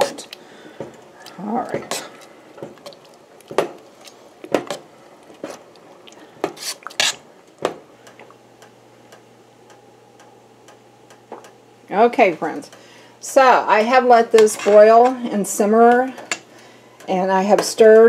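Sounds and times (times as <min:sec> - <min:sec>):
spoon scraping a metal pot: 0:06.6 - 0:07.2.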